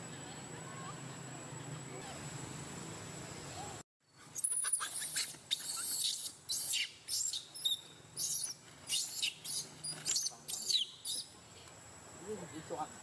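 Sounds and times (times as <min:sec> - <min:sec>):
baby monkey squealing: 0:04.3 - 0:11.3.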